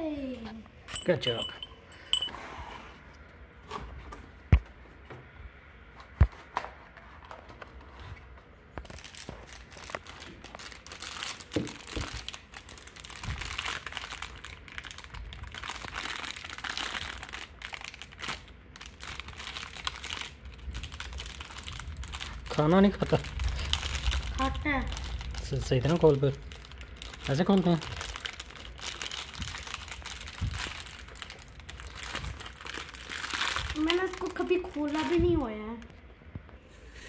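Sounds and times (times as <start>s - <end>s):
foil bag crinkling and tearing: 8.8s - 35.9s.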